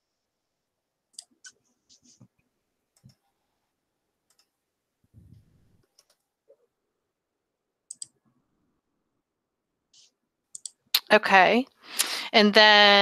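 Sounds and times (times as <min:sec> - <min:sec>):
faint computer mouse clicks: 0:04.3 - 0:04.5, 0:07.9 - 0:08.2, 0:10.6 - 0:10.8
soft low rustle: 0:05.0 - 0:05.8.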